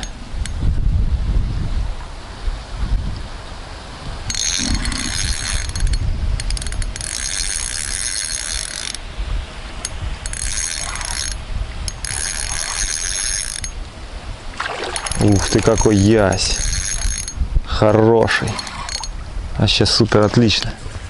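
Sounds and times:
wind rumble on microphone: 0:00.0 - 0:21.0
fishing reel drag ratcheting: 0:04.3 - 0:09.0, 0:09.8 - 0:13.8, 0:15.0 - 0:17.4, 0:18.4 - 0:19.2.

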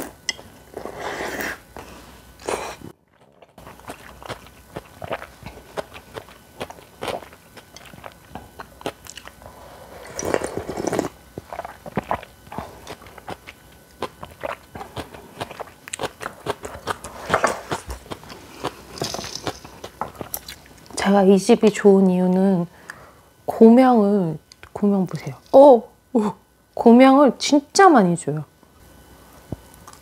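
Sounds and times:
crunching bites and chewing: 0:03.1 - 0:09.4, 0:10.2 - 0:20.9.

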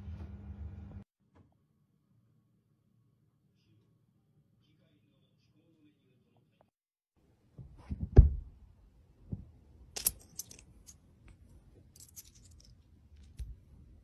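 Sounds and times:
dull thumps on a cushion: 0:07.6 - 0:08.5
coins clicking: 0:10.0 - 0:11.0, 0:12.0 - 0:13.4.

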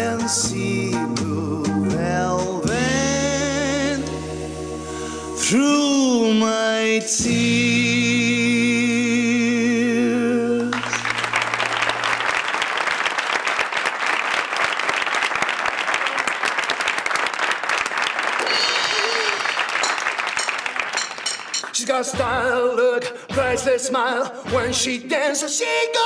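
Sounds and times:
man and woman singing: 0:00.0 - 0:04.1, 0:05.4 - 0:10.9, 0:21.7 - 0:26.0
small band playing: 0:00.0 - 0:13.2, 0:18.2 - 0:25.0
audience applause: 0:10.7 - 0:21.8.

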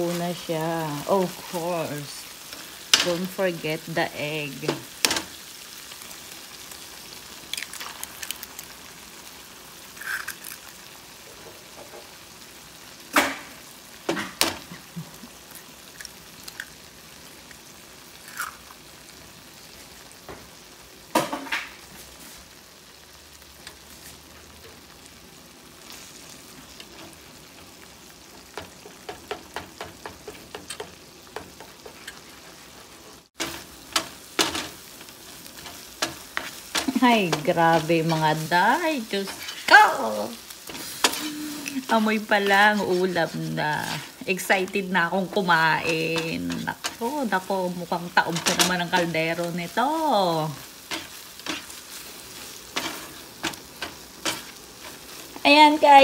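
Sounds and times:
food sizzling in a pan: 0:00.0 - 0:56.0
eggs cracking: 0:07.4 - 0:08.8, 0:09.9 - 0:10.8, 0:15.9 - 0:16.8, 0:18.2 - 0:18.8
spatula tapping a pan: 0:28.5 - 0:32.0.

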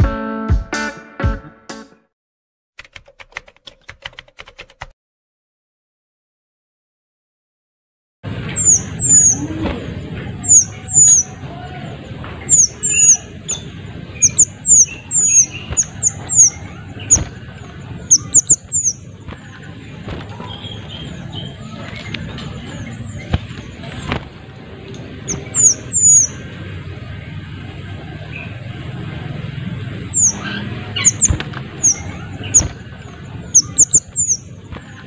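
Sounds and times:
low background noise: 0:08.3 - 0:35.0
bird calling high thin notes: 0:08.6 - 0:09.6.

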